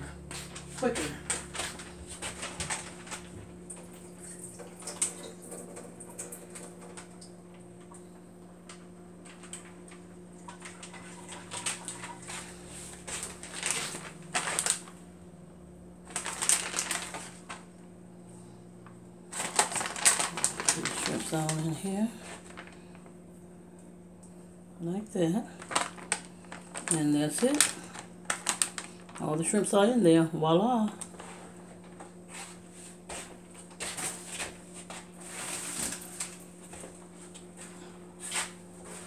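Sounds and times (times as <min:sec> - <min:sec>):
plastic bag crinkling: 0:00.5 - 0:03.4, 0:10.6 - 0:15.1, 0:16.0 - 0:17.7, 0:19.3 - 0:23.1, 0:25.4 - 0:30.2.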